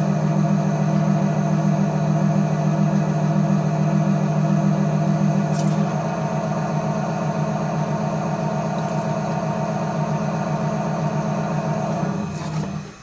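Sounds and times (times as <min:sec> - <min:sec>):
potter's wheel motor humming: 0:00.0 - 0:13.0.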